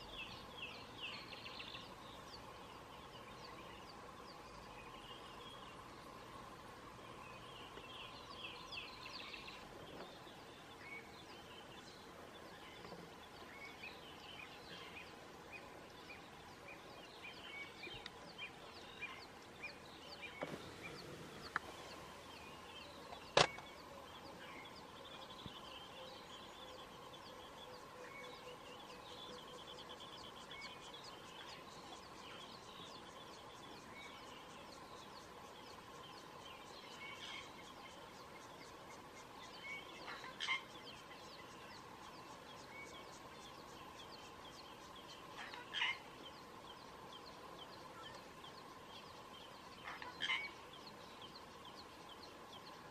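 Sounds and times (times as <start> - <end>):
birds chirping: 0.0 - 52.9
faint steady drone: 0.0 - 52.9.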